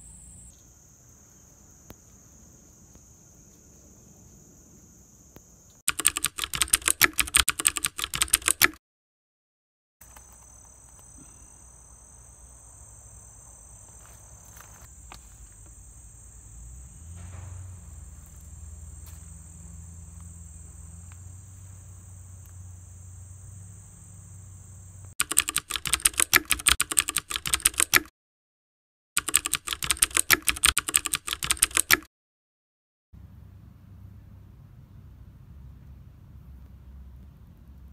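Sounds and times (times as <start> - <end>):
high insect drone: 0.0 - 5.8, 10.0 - 25.2
keyboard typing clicks: 5.9 - 8.8, 25.2 - 28.1, 29.2 - 32.1.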